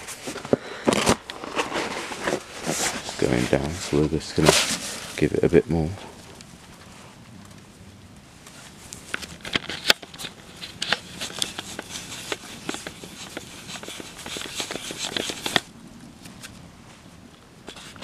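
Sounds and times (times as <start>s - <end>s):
camera lens rubbing: 9.4s - 15.7s, 17.7s - 18.0s.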